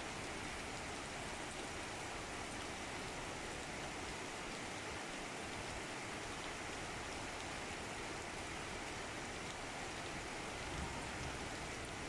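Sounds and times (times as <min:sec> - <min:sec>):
heavy rain falling: 0:07.3 - 0:12.0.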